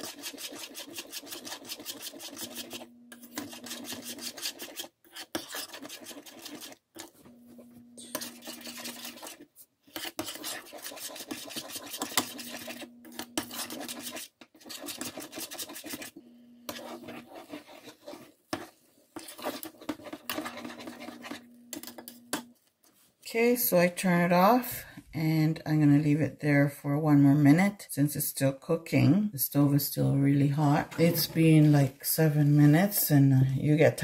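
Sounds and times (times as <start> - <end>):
metal spoon scraping saucepan: 0.0 - 22.5, 30.6 - 31.8.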